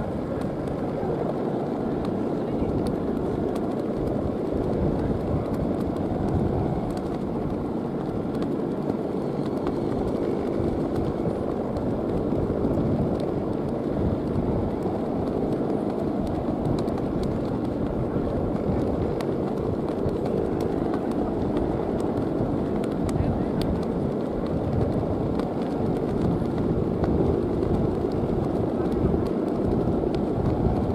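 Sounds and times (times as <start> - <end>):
wind on microphone: 0.0 - 30.9.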